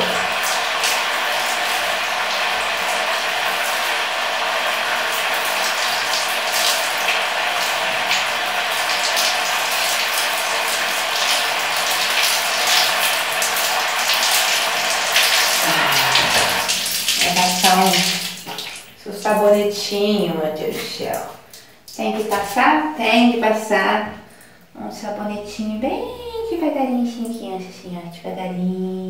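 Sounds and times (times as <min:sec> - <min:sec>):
shower hose spraying water: 0:00.0 - 0:21.2.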